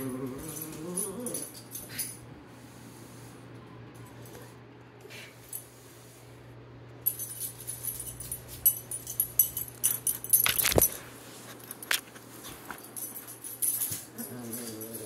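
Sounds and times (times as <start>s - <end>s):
light jingling and clicking: 0.4s - 2.2s, 7.0s - 15.0s.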